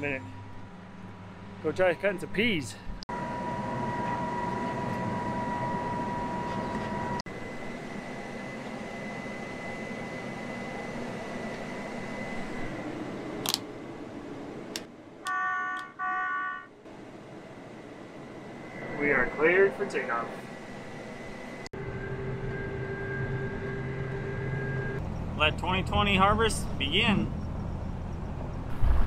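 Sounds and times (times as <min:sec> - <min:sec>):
machinery running with high whine: 0:00.0 - 0:16.1, 0:16.7 - 0:29.0
hum inside machine cab: 0:00.0 - 0:29.0
clicks: 0:14.7 - 0:16.0.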